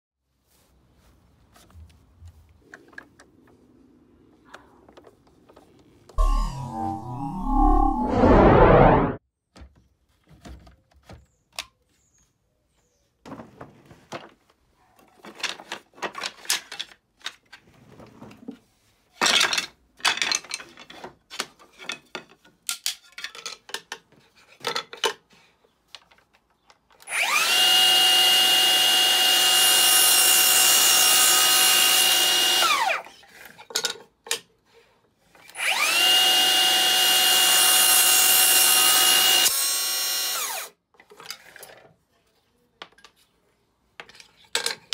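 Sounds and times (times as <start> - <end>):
mitre saw motor whining: 6.2 - 9.2
saw cutting wood: 27.1 - 33.0, 35.5 - 40.7.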